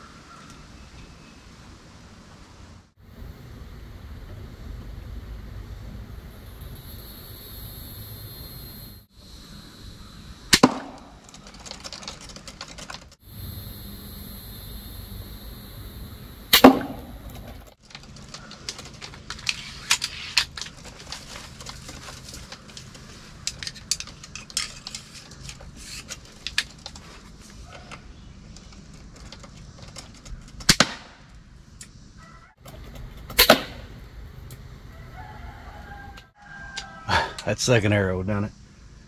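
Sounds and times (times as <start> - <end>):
crossbow firing snaps: 16.5 - 17.4, 33.3 - 33.9.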